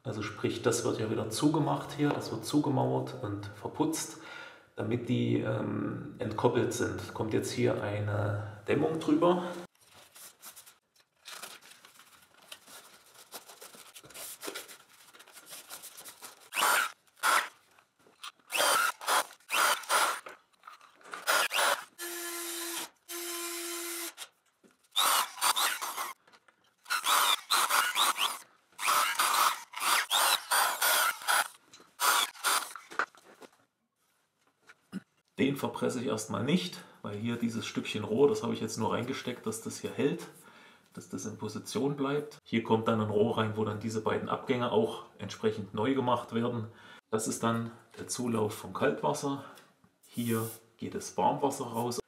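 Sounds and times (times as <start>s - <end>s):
cordless drill running: 16.5s - 17.5s, 18.5s - 20.4s, 21.2s - 24.3s, 24.9s - 26.2s, 26.8s - 32.9s.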